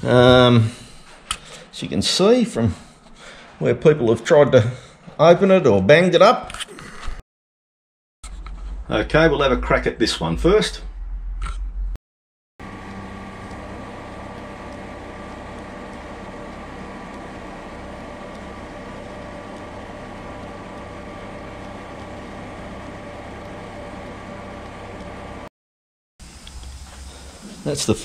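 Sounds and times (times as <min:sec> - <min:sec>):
vapour-blasting cabinet hissing: 0:12.7 - 0:25.5, 0:26.2 - 0:28.0.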